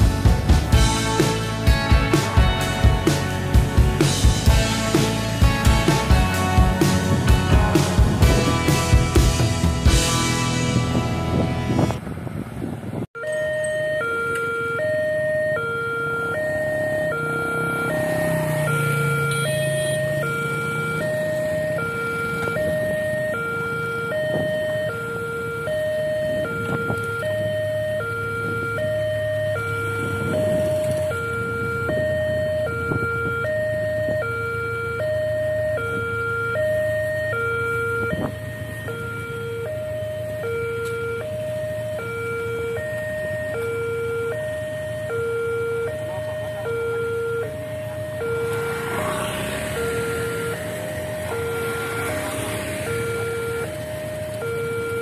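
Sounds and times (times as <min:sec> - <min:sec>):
motorcycle engines idling: 0:00.0 - 0:12.2, 0:14.9 - 0:55.0
level crossing two-note alarm: 0:13.2 - 0:55.0.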